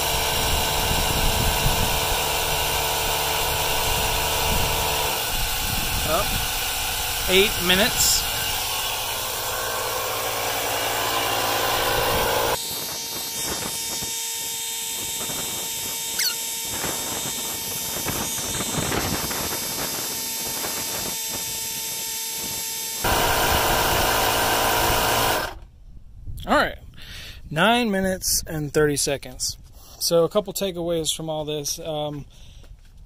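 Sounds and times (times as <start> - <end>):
tire inflator running: 0.0 - 25.6.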